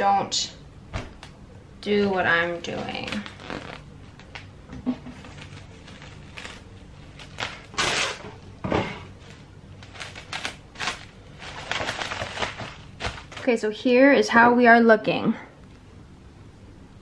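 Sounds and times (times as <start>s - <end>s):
plastic cling wrap crinkling: 2.6s - 8.5s, 9.1s - 13.8s.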